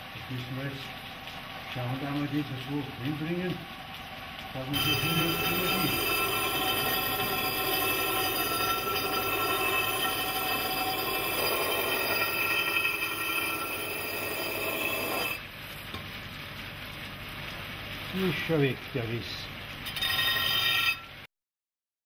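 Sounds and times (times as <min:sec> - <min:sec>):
glass on grinding wheel whining: 0:04.5 - 0:15.4, 0:19.8 - 0:21.2.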